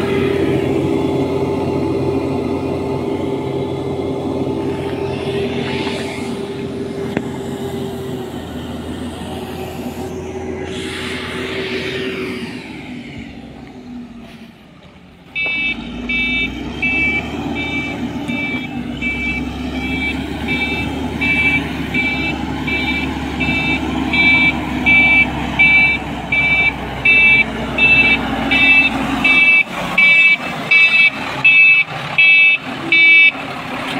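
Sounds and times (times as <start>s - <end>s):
diesel engine running: 0.0s - 33.9s
reversing alarm beeping: 15.3s - 33.5s.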